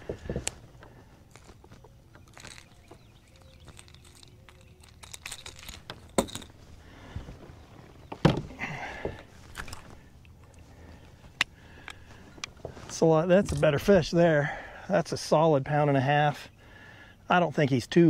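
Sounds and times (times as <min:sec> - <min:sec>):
handling clicks and knocks: 0:00.0 - 0:13.9
brief rustle: 0:00.2 - 0:06.6.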